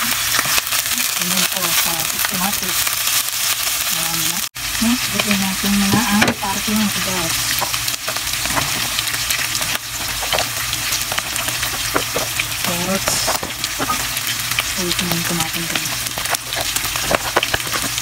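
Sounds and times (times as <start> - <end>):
meat sizzling in hot oil: 0.0 - 18.0.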